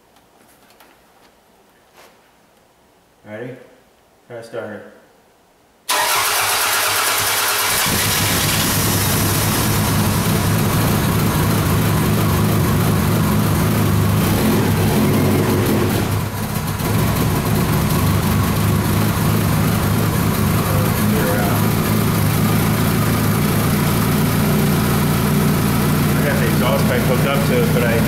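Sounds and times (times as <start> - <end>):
man talking: 3.2 - 3.7, 4.3 - 5.0, 20.6 - 21.8, 26.1 - 28.0
car engine starting and running: 5.9 - 28.0.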